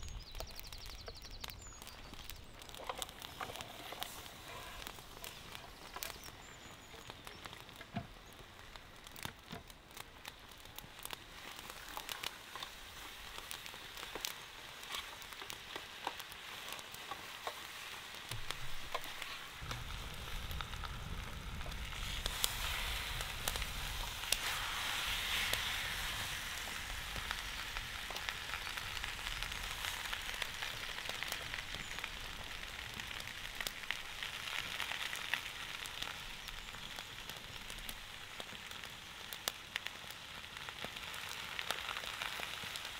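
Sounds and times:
beef sizzling and popping: 0:00.0 - 0:42.9
low rumble: 0:19.6 - 0:22.1.

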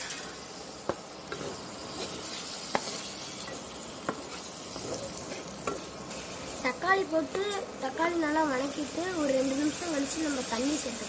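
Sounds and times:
vegetables sizzling in oil: 0:00.0 - 0:11.0
spatula stirring and scraping: 0:01.4 - 0:06.6.

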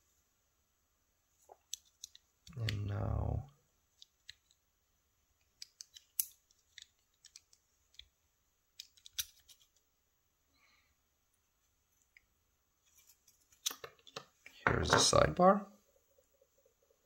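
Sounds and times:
small metal lock parts clicking: 0:05.6 - 0:08.1, 0:08.8 - 0:09.7.

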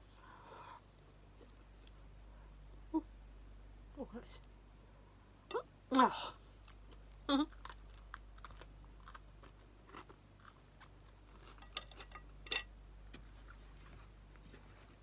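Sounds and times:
chewing and crunching food: 0:06.5 - 0:13.7
small crackles: 0:06.7 - 0:11.8.

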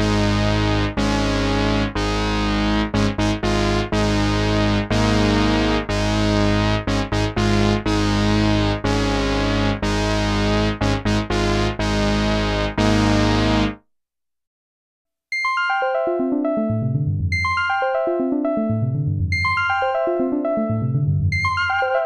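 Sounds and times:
synthesizer held chord: 0:00.0 - 0:13.8
bell-like plucked synth run: 0:15.6 - 0:22.0.

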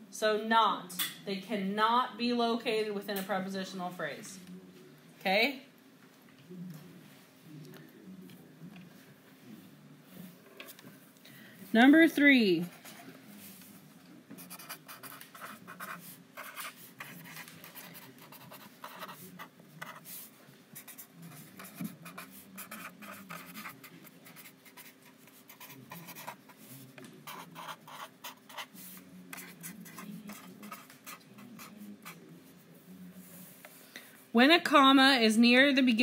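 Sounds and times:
pen writing on paper: 0:14.4 - 0:20.2, 0:20.8 - 0:26.5, 0:27.2 - 0:28.7, 0:29.3 - 0:32.2.

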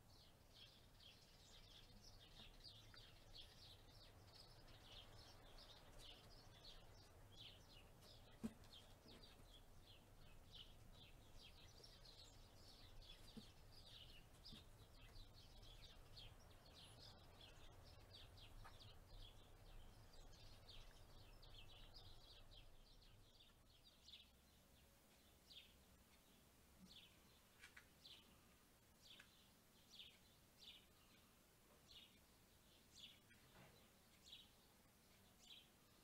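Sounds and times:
small birds chirping: 0:00.0 - 0:36.0.

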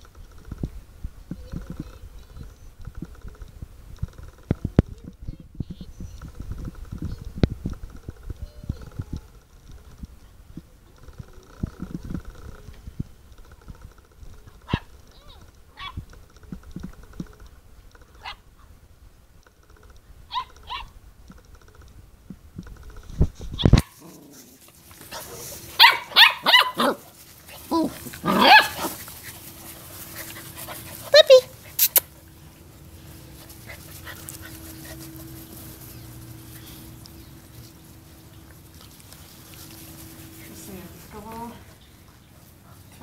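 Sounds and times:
light rustles and ticks: 0:00.0 - 0:43.0
puppies barking high-pitched: 0:20.3 - 0:20.9, 0:25.1 - 0:32.2.

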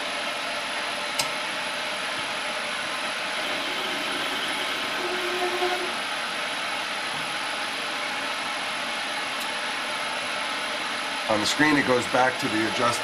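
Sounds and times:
metal lathe running: 0:03.0 - 0:06.6
faint brief whine: 0:03.4 - 0:06.1.

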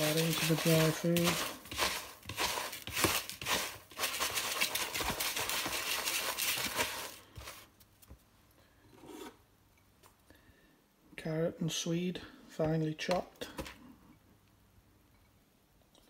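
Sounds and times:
hand stirring dry food mix: 0:00.0 - 0:08.3.

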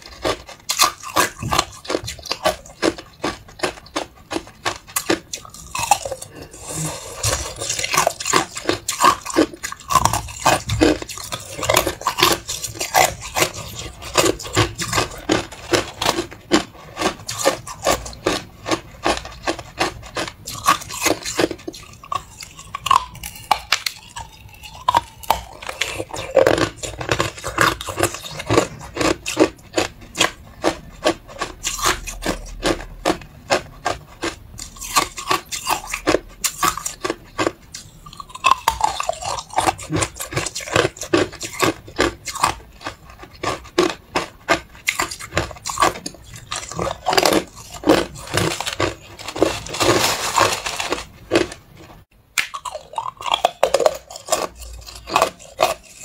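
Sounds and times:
ice crunching: 0:46.5 - 0:51.6.

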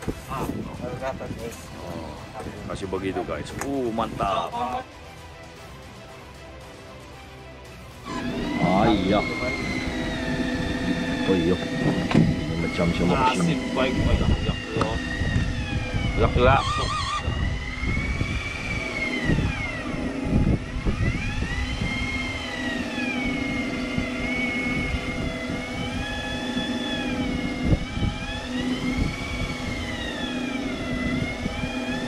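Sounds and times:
low engine hum: 0:00.0 - 0:32.0
fishing reel screaming: 0:08.0 - 0:32.0.

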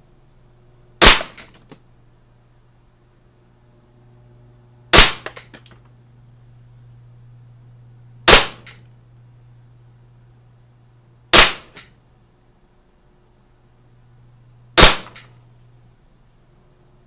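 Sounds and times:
airsoft pistol shots: 0:01.0 - 0:01.8, 0:04.9 - 0:05.6, 0:08.3 - 0:08.8, 0:11.3 - 0:11.9, 0:14.8 - 0:15.3.

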